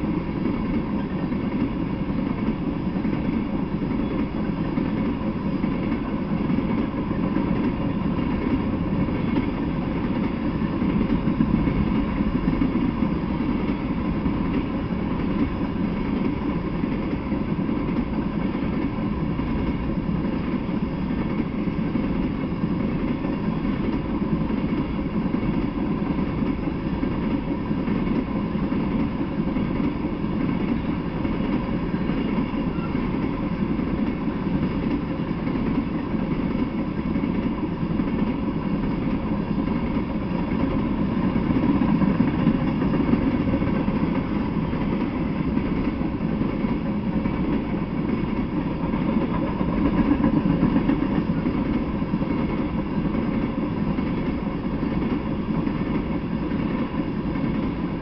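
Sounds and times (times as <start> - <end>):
train wheels rumbling on rail: 0.0 - 58.0.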